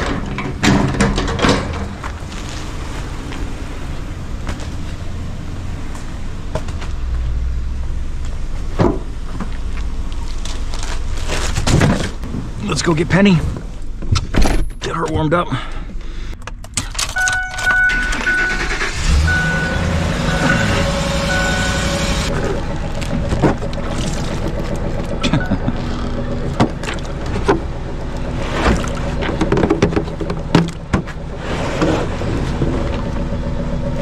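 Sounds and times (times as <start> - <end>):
truck engine starting and idling: 0.0 - 14.2, 14.9 - 34.0
single-pitched beep: 17.2 - 18.6, 19.2 - 22.2.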